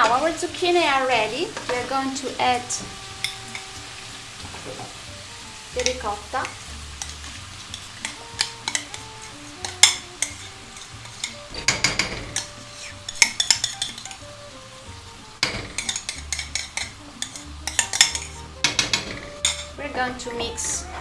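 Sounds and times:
faint sizzle from a pan: 0:00.0 - 0:21.0
metal utensil clinking on ceramic: 0:05.8 - 0:14.3, 0:15.4 - 0:19.8.

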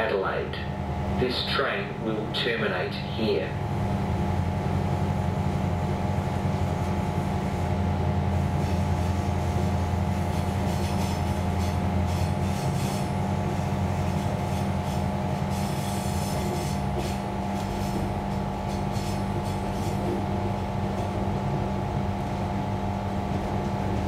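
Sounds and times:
train hum and rumble: 0:00.0 - 0:24.0
train wheel squeal: 0:10.6 - 0:13.1.

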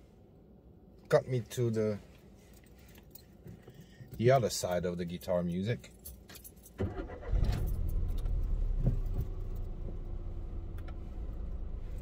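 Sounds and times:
keys jangling: 0:05.8 - 0:06.8
car engine starting and idling: 0:06.8 - 0:12.0.

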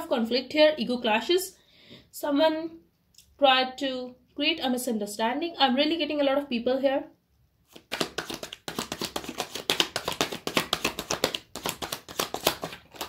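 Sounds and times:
cards being shuffled: 0:07.7 - 0:13.0.

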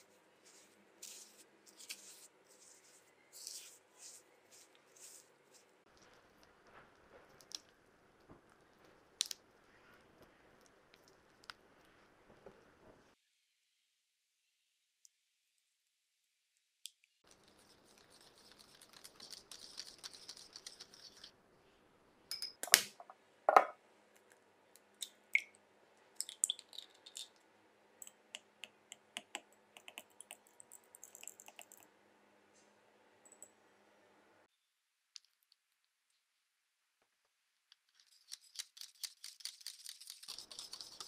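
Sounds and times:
eggs beaten in a glass: 0:17.4 - 0:21.3.

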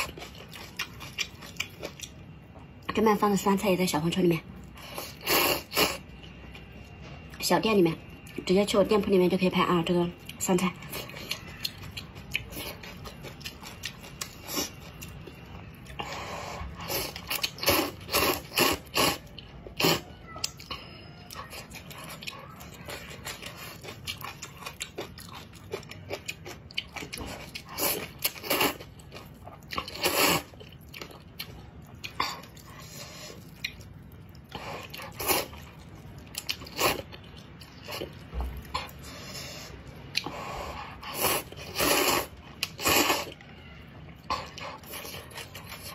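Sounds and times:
chewing: 0:00.0 - 0:02.7, 0:10.1 - 0:45.9
noodle slurping: 0:29.8 - 0:30.6, 0:39.1 - 0:43.4.

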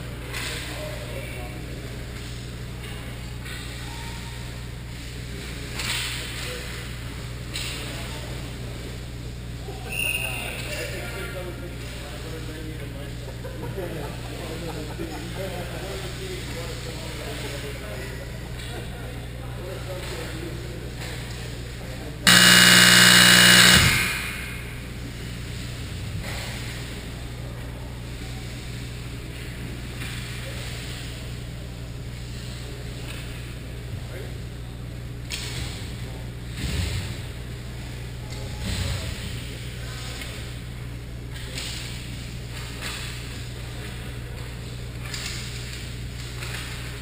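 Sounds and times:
low arena hum: 0:11.0 - 0:47.0
horn blaring: 0:22.3 - 0:24.8
low hum: 0:22.3 - 0:25.3.

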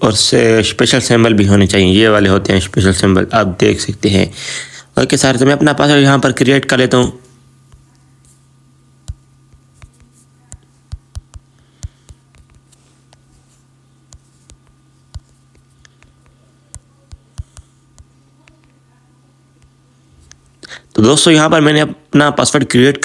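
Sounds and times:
faint low hum: 0:00.0 - 0:23.0
light taps on smartphone screen: 0:09.0 - 0:13.3.

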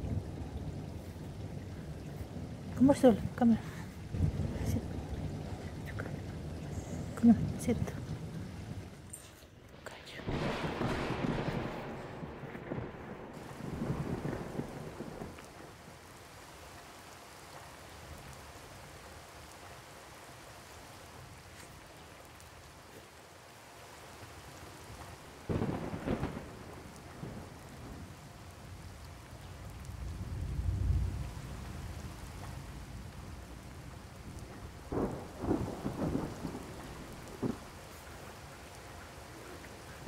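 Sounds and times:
deep thunder rumble: 0:00.0 - 0:09.1, 0:09.9 - 0:15.8, 0:25.2 - 0:40.0
steady rain: 0:00.0 - 0:40.0
thunder crack: 0:10.1 - 0:15.4, 0:25.4 - 0:28.2, 0:32.8 - 0:38.0.

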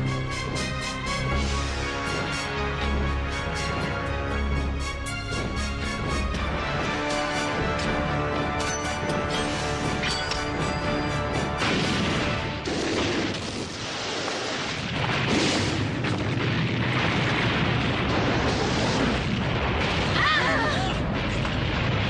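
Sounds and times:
action film music: 0:00.0 - 0:13.7
explosions and booming blasts: 0:00.0 - 0:22.0.

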